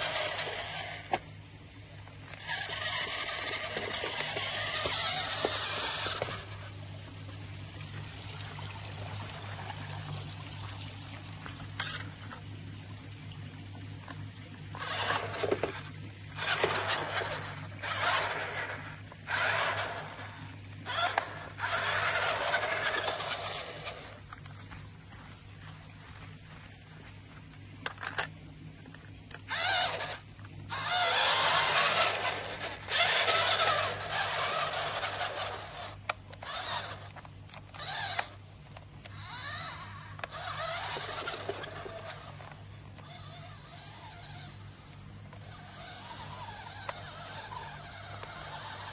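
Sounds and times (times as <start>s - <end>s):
toy car motors whirring: 0.0s - 1.4s, 2.1s - 7.1s, 11.6s - 12.4s, 14.7s - 24.7s, 27.8s - 28.4s, 29.3s - 48.9s.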